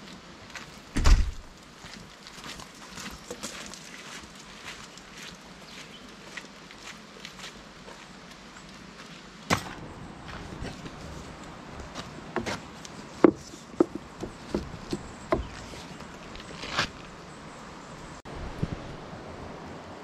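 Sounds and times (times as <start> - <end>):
hollow knocks and clunks on canoe: 13.2 - 15.8.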